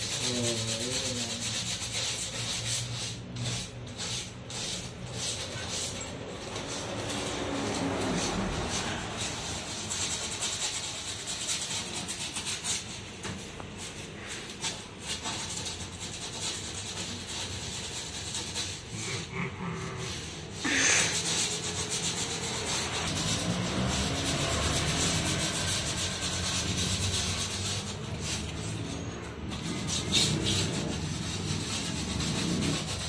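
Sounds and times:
scratching on wooden board: 0.0 - 33.0.

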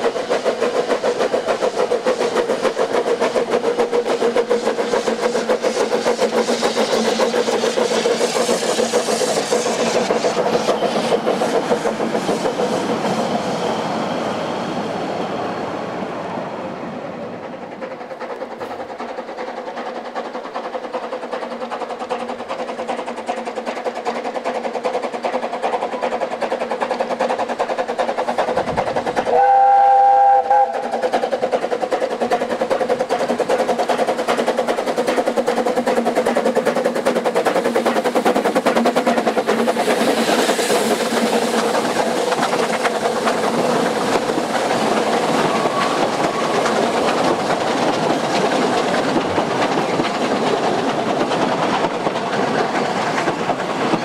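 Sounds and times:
steam locomotive chuffing: 0.0 - 54.0
steam whistle blast: 29.3 - 31.0.

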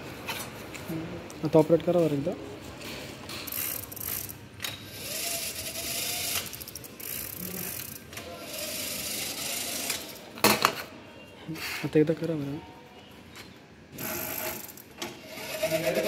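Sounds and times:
gears and chain drive running: 3.5 - 10.2, 14.0 - 16.0.

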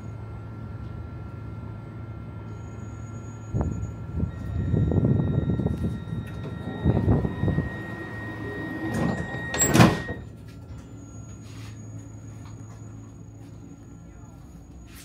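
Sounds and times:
electrical hum: 0.0 - 15.0
train doors shutting with whoosh: 4.3 - 10.4.

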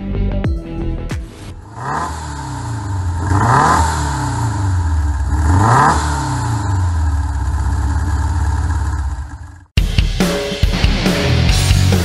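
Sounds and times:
car engine revving and idling: 1.6 - 9.8.

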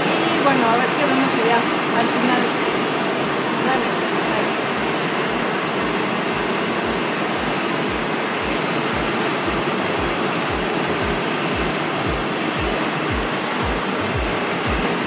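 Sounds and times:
steady rushing noise: 0.0 - 15.0.

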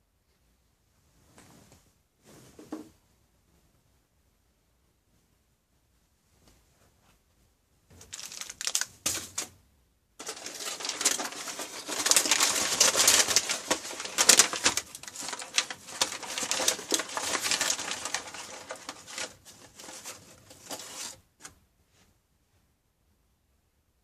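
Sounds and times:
bag crinkling: 8.0 - 9.5, 10.2 - 21.2
dense crackle: 8.0 - 9.5, 10.2 - 21.2.

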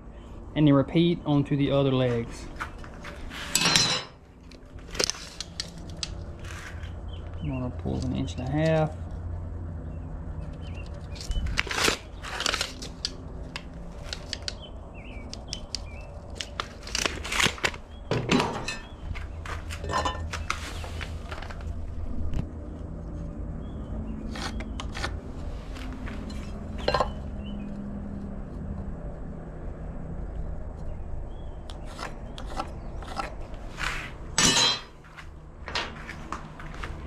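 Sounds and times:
steady low hum: 0.0 - 37.0
scraping: 18.2 - 21.7.

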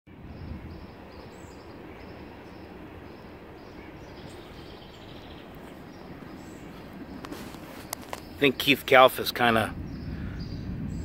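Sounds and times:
outdoor background noise: 0.1 - 11.0.

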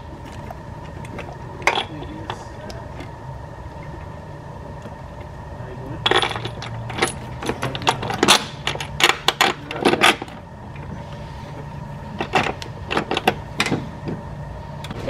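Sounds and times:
low steady hum: 0.0 - 15.0
metal parts clinking: 1.6 - 2.4, 6.0 - 10.4.

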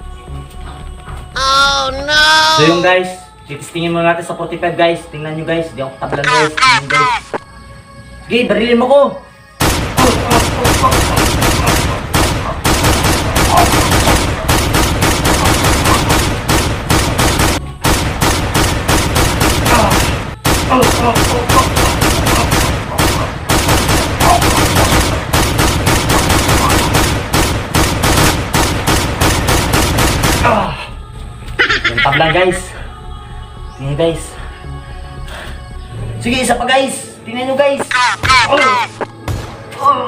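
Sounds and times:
handgun gunfire: 9.6 - 30.6.

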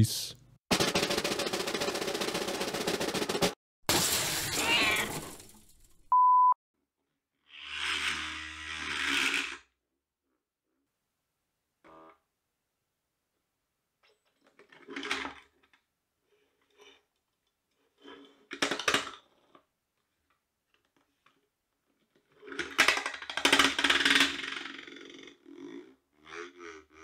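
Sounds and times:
linear motor buzzing and clattering: 7.5 - 9.7, 22.6 - 25.3.

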